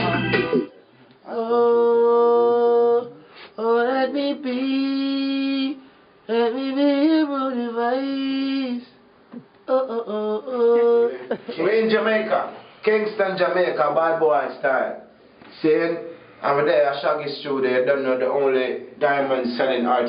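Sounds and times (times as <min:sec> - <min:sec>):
person singing wordless notes: 0:00.0 - 0:08.9, 0:09.7 - 0:11.3.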